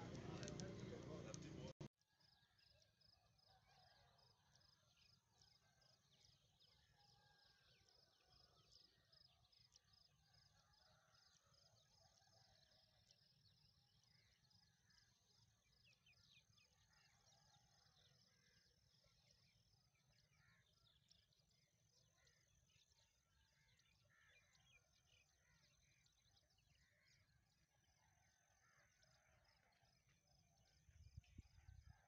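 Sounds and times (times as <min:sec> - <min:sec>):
small birds chirping: 0:00.0 - 0:01.8.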